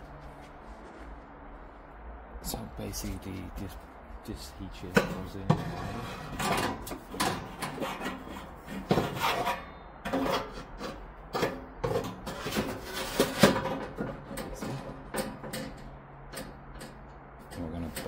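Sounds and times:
metal heat shield scraping: 5.0 - 17.0.

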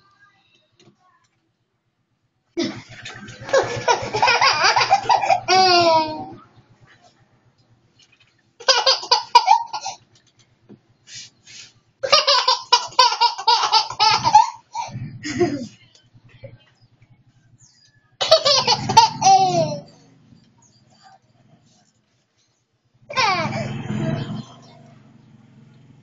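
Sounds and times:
toddler laughing: 3.4 - 6.4, 8.6 - 10.0, 12.0 - 15.7, 18.2 - 20.0, 23.1 - 23.7.

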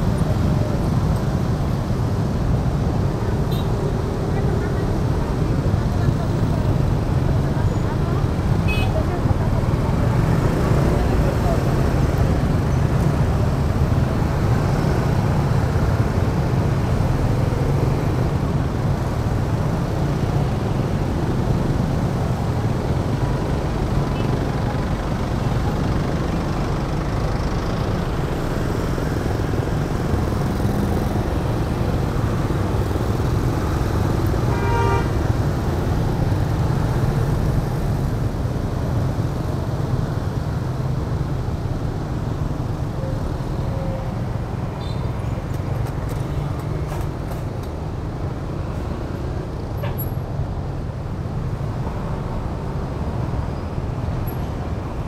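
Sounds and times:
scooters and cars passing: 0.0 - 55.0
vehicle horn toot: 34.5 - 35.1.

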